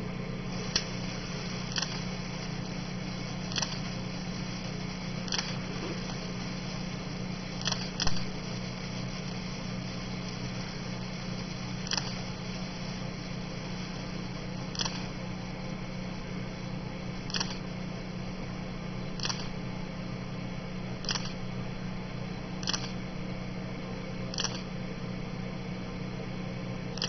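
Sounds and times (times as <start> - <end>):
low hum: 0.0 - 26.0
steady hiss: 0.0 - 27.0
sparkler popping: 0.5 - 19.6, 20.9 - 21.4.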